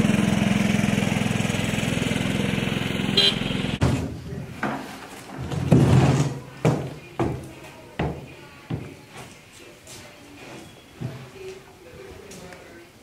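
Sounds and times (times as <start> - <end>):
utility vehicle engine running: 0.0 - 3.8.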